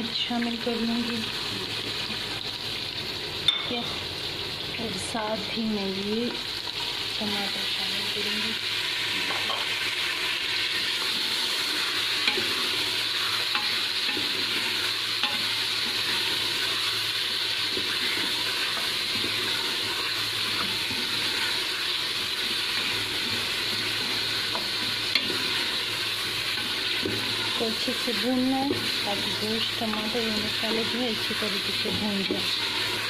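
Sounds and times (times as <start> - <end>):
food sizzling in a pot: 0.0 - 33.0.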